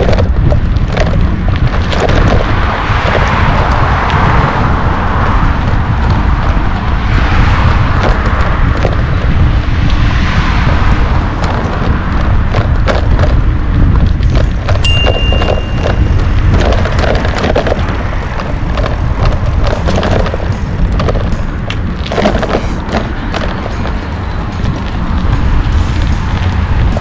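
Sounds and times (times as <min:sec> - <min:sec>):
bicycle rattling over bumps: 0:00.0 - 0:27.0
wind buffeting microphone: 0:00.0 - 0:27.0
high-pitched tone: 0:14.9 - 0:16.2.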